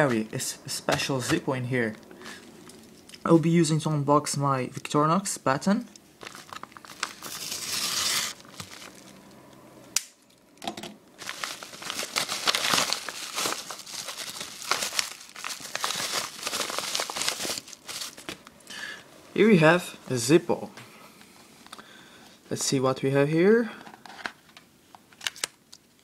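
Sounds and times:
padded envelope crinkling and tearing: 0:06.2 - 0:09.2, 0:11.2 - 0:18.4.

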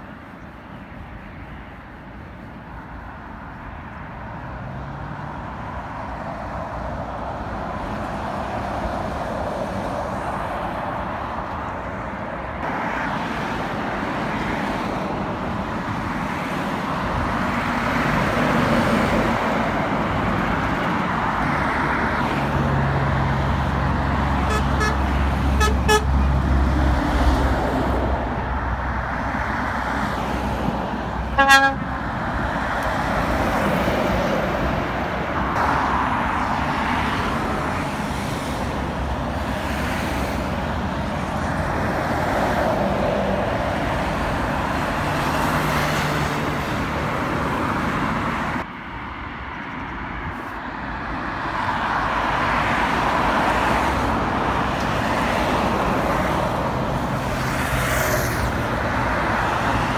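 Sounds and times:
vehicles driving past: 0:00.0 - 0:59.9
short horn toot: 0:24.5 - 0:25.0, 0:25.6 - 0:26.1, 0:31.4 - 0:31.9.

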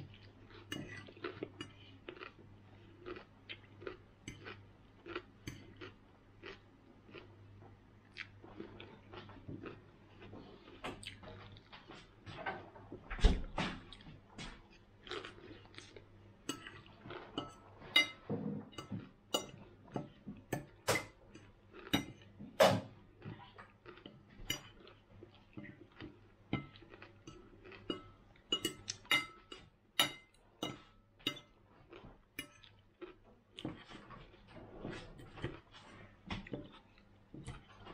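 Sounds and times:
metal fork scraping ceramic plate: 0:16.5 - 0:20.1.

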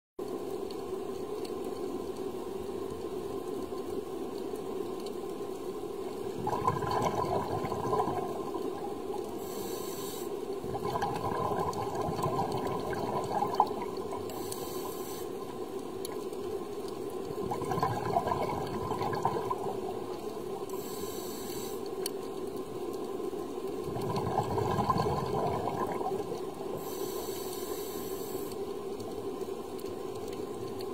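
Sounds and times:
exhaled bubbles rushing: 0:06.3 - 0:09.2, 0:10.6 - 0:14.4, 0:17.3 - 0:20.8, 0:23.8 - 0:26.9
diver breathing through regulator: 0:09.3 - 0:10.4, 0:14.3 - 0:15.4, 0:20.7 - 0:21.9, 0:26.8 - 0:28.6.

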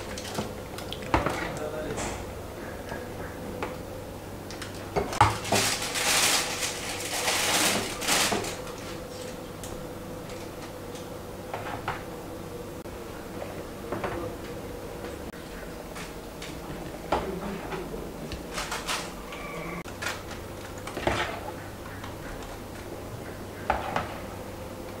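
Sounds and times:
piping bag rustling: 0:04.8 - 0:09.4.

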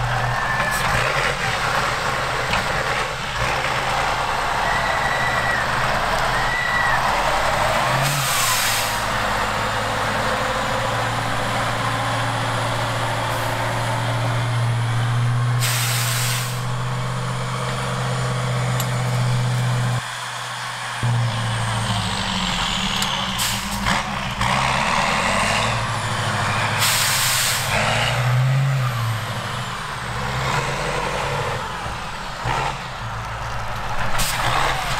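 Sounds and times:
truck diesel engine droning: 0:00.0 - 0:34.9
air brake hisses: 0:08.0 - 0:09.1, 0:15.6 - 0:16.7, 0:23.4 - 0:23.8, 0:26.8 - 0:27.7, 0:34.1 - 0:34.5.

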